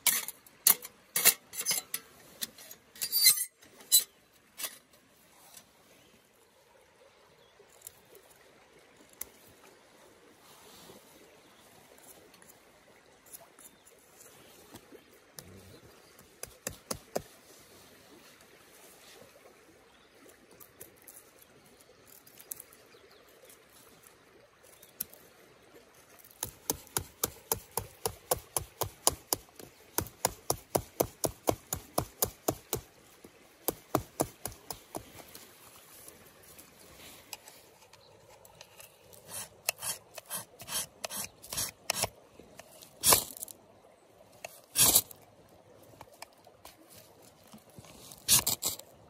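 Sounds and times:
knife scraping wood: 0:37.3 - 0:43.5, 0:44.5 - 0:45.1, 0:48.1 - 0:48.9.

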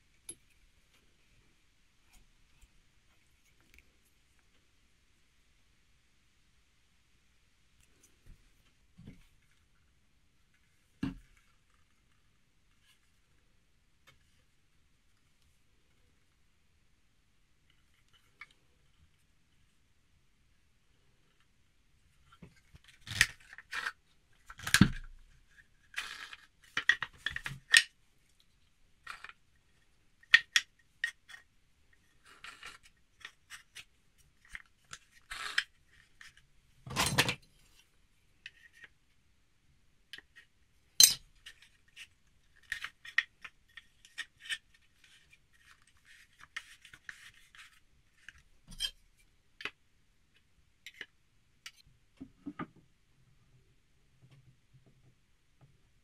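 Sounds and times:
wood knocking and scraping on wood: 0:52.2 - 0:52.9.

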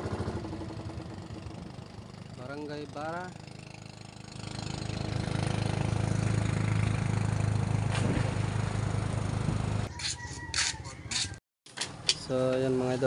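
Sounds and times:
small engine running: 0:00.0 - 0:09.9.

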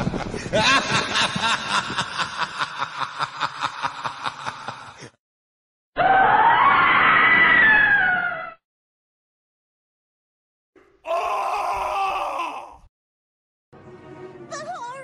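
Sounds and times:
rapid laugh: 0:00.0 - 0:05.2
loud long scream: 0:06.0 - 0:08.6, 0:11.1 - 0:12.9.

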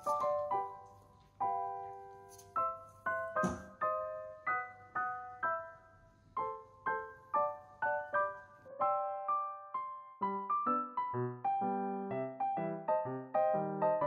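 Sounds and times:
piano notes and chords: 0:00.0 - 0:14.0
brief thump: 0:03.4 - 0:03.8.

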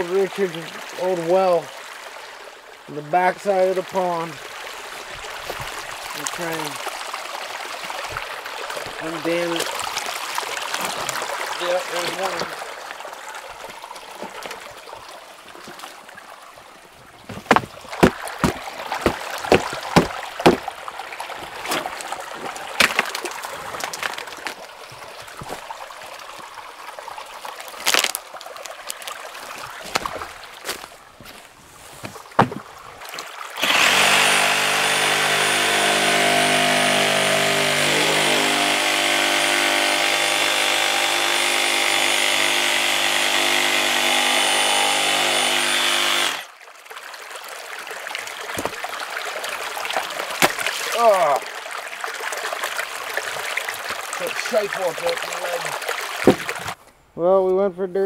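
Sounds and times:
water trickling: 0:00.0 - 0:37.9, 0:46.4 - 0:57.0
sharp clicks and knocks: 0:17.3 - 0:20.6
small engine running: 0:33.6 - 0:46.5.

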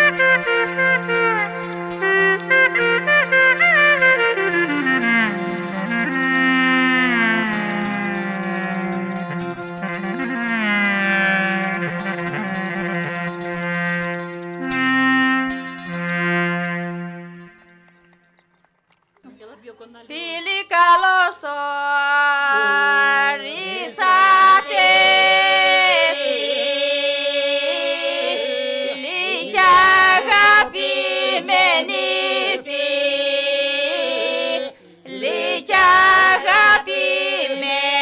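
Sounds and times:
group singing unaccompanied: 0:22.5 - 0:38.0
held vocal drone: 0:22.5 - 0:38.0.

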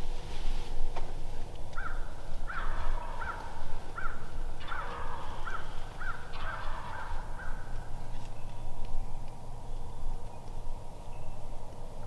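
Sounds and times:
turkeys clucking: 0:04.6 - 0:05.3, 0:06.3 - 0:07.2.

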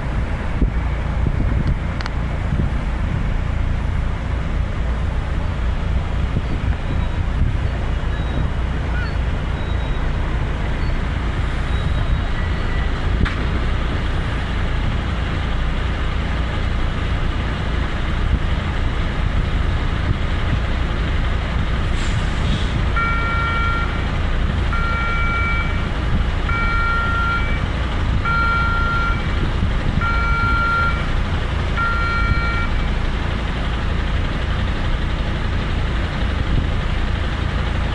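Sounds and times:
heavy vehicle engines idling: 0:00.0 - 0:37.9
truck reversing alarm beeps: 0:08.0 - 0:10.2, 0:10.8 - 0:13.0, 0:23.0 - 0:33.0.

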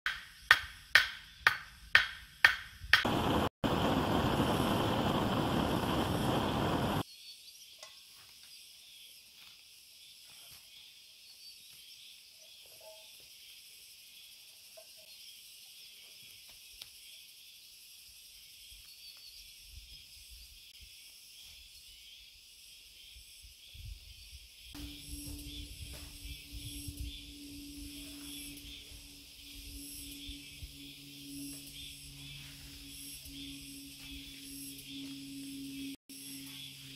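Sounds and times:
gas torch burning: 0:03.0 - 0:07.0
forest insects chorus: 0:03.0 - 0:36.9
low hum: 0:03.1 - 0:07.0, 0:24.8 - 0:36.9.

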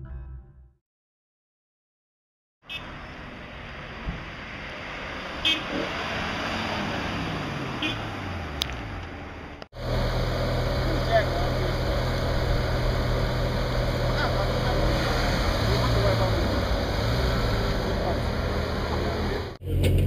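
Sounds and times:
road traffic: 0:02.6 - 0:20.0
car driving past: 0:02.9 - 0:19.9
low engine idle: 0:09.8 - 0:14.8.

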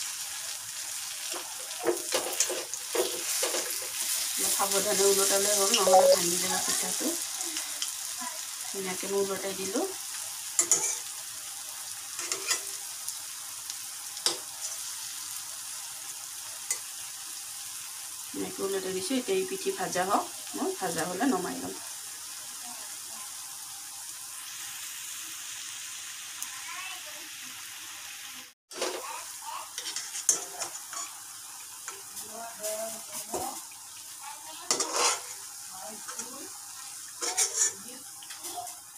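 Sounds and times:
fritters sizzling in oil: 0:00.0 - 0:38.9
spatula scraping metal pan: 0:01.8 - 0:06.2, 0:10.6 - 0:11.1, 0:12.2 - 0:12.7, 0:29.8 - 0:31.2, 0:34.7 - 0:35.4, 0:37.2 - 0:38.5.

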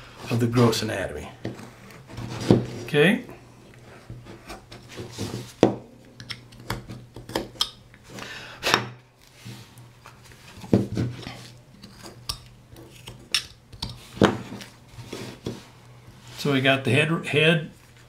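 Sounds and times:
faint steady hum: 0:00.0 - 0:18.0
knife scraping wood: 0:10.4 - 0:16.4.

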